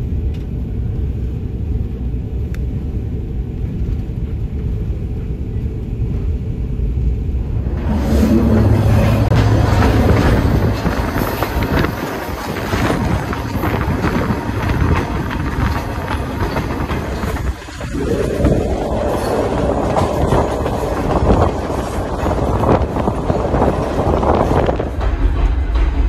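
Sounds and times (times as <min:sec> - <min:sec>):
train rumbling on rails: 0:00.0 - 0:26.0
wheel clicks over rail joints: 0:09.4 - 0:25.8.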